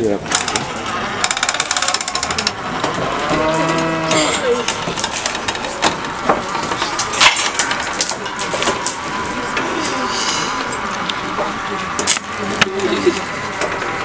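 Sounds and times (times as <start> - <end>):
cow mooing: 3.1 - 4.7.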